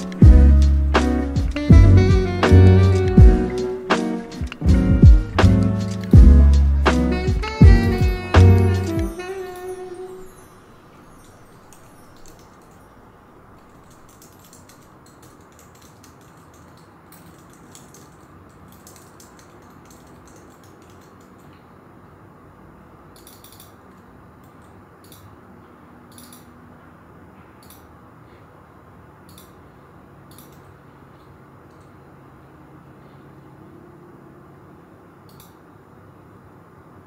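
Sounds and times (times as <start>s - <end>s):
keyboard typing clicks: 0.0s - 0.2s, 13.6s - 21.6s
low hiss of room tone: 0.0s - 37.0s.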